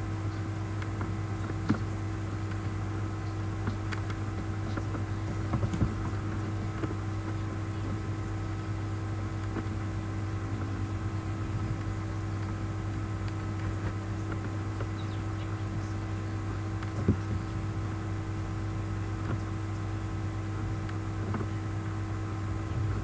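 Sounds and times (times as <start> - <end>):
low electrical hum and hiss: 0.0 - 23.0.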